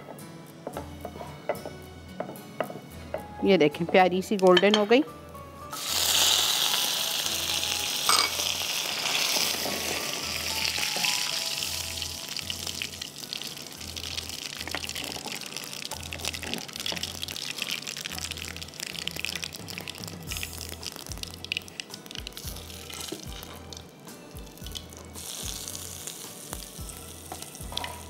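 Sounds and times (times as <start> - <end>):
hot oil sizzling in a frying pan: 5.7 - 28.0.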